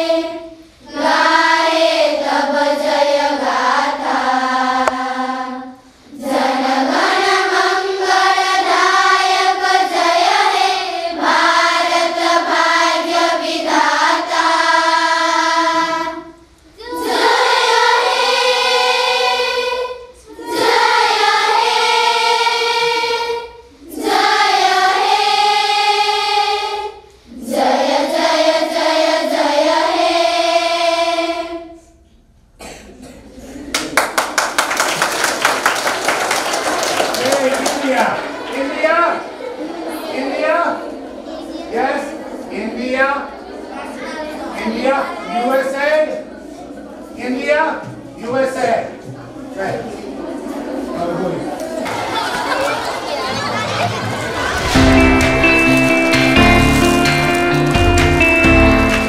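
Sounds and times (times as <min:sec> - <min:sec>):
children singing: 0:00.0 - 0:32.0, 0:49.3 - 0:59.0.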